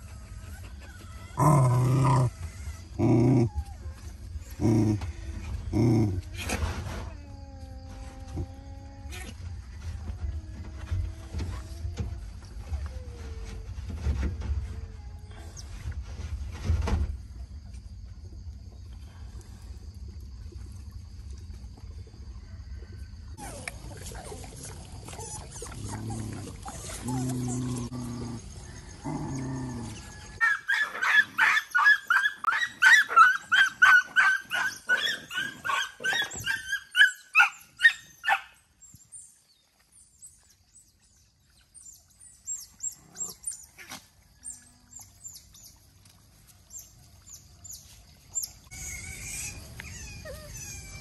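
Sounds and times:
dog growling: 1.2 - 3.7, 4.5 - 6.3, 23.4 - 30.4
puppy yelping: 30.4 - 38.5, 48.7 - 51.0.

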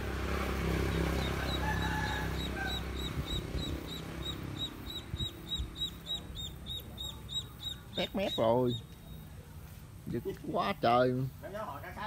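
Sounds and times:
duckling peeping: 0.8 - 9.4.

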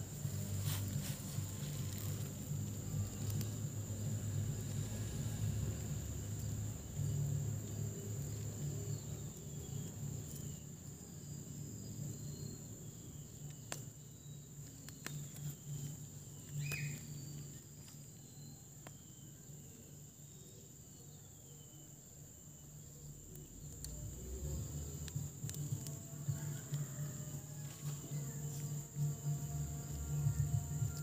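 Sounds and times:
insects droning: 0.0 - 31.0.

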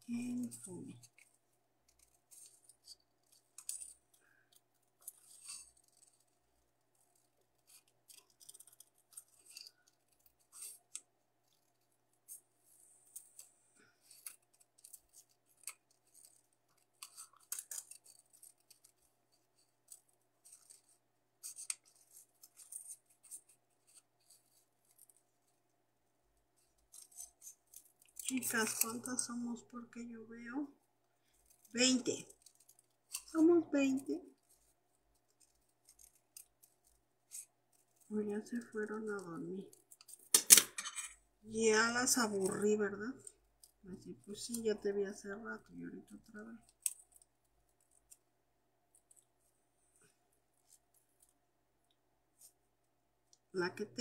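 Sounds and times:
scissors snipping paper: 14.1 - 19.1.

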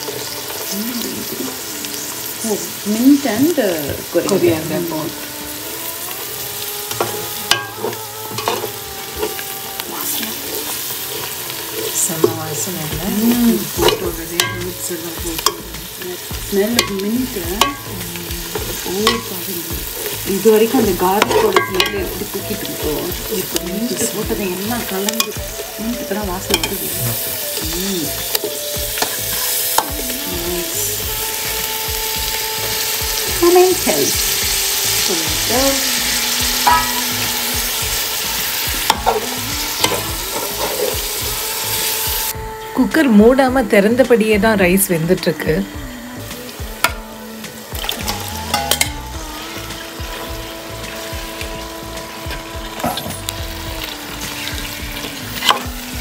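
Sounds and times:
food sizzling: 0.0 - 56.0
spoon scraping metal pot: 19.9 - 24.4, 36.6 - 37.2, 38.9 - 41.0.

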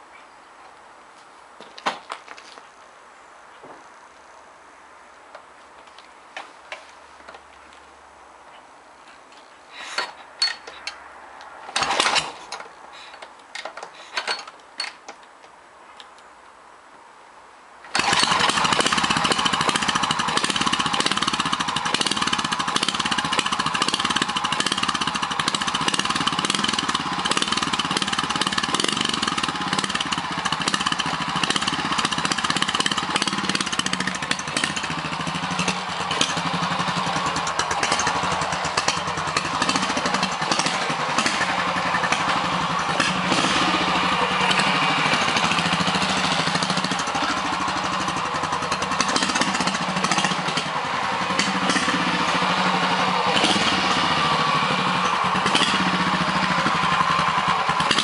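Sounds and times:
motorcycle kick-start clanks: 9.8 - 11.0, 11.7 - 15.2, 17.9 - 50.8, 51.4 - 57.0
motorcycle engine running: 18.0 - 58.0.

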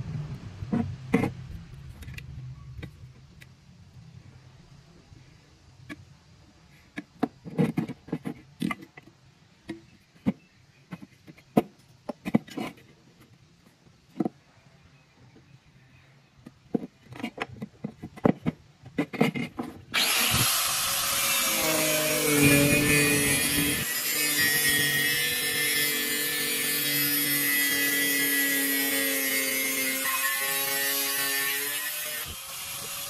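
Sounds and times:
angle grinder cutting metal: 19.9 - 33.0.

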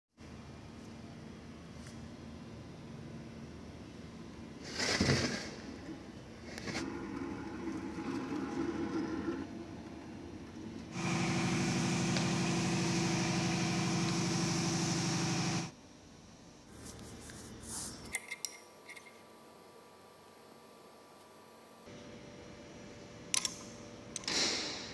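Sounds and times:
quiet workshop noise: 0.2 - 24.9
machine humming: 6.7 - 15.8.

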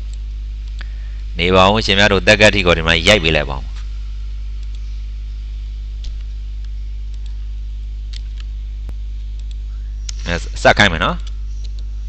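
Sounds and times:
electrical mains hum: 0.0 - 12.0
faint clicks: 4.6 - 4.8, 9.3 - 10.2, 11.2 - 11.9.

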